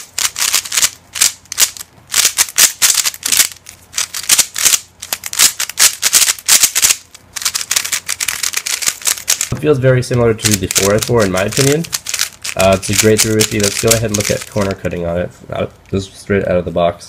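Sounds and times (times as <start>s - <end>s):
puzzle cube plastic clicks: 0.0s - 9.5s, 10.4s - 14.8s.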